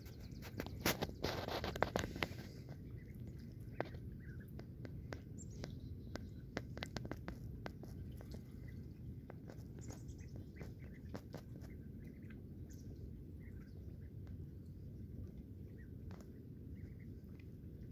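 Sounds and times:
ducklings' bills clicking: 0.0s - 12.4s
ducklings peeping: 0.0s - 17.9s
low steady rumble: 0.0s - 17.9s.

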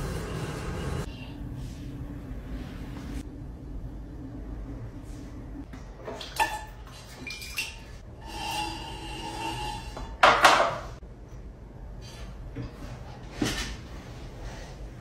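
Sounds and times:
potter's wheel humming: 8.1s - 10.3s.

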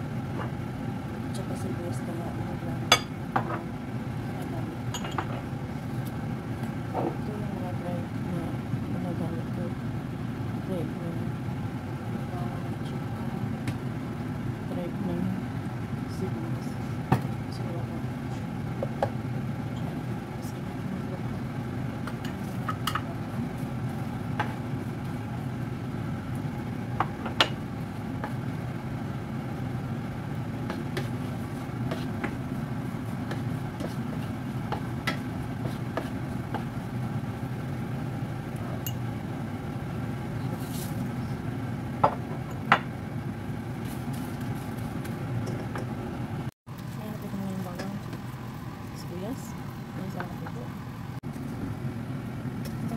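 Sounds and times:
range hood fan hum: 0.0s - 52.9s
garlic sizzling in oil: 16.8s - 42.6s, 46.7s - 51.6s.

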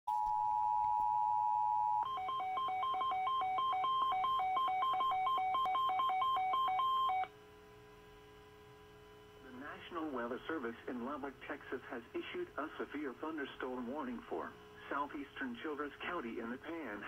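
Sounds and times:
two-tone alert signal: 0.1s - 7.3s.

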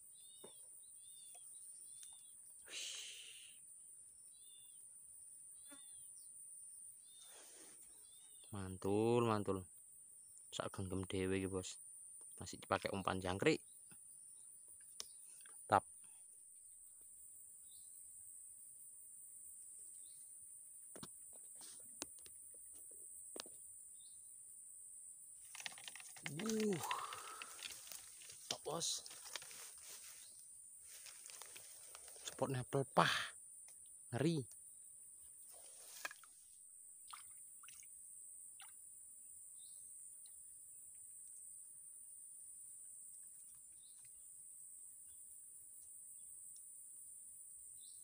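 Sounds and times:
faint chirps: 0.0s - 46.9s
insects droning: 0.0s - 48.0s
soft rustle: 27.4s - 32.3s, 35.4s - 36.4s.

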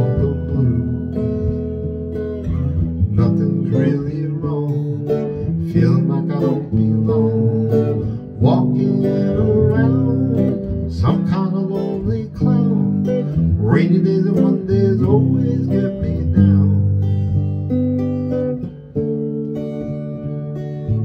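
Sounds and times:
man singing: 0.0s - 1.8s, 2.9s - 17.4s
guitar strumming: 0.0s - 21.0s.

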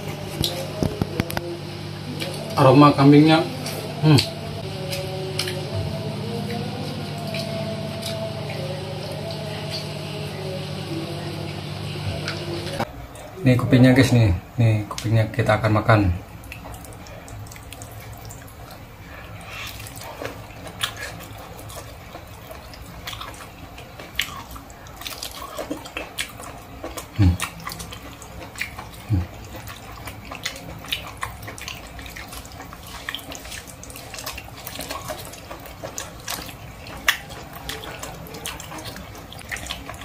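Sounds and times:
wet chewing and lip-smacking: 0.0s - 2.6s, 3.5s - 10.0s, 16.3s - 40.0s
cartilage crunching: 19.5s - 40.0s.

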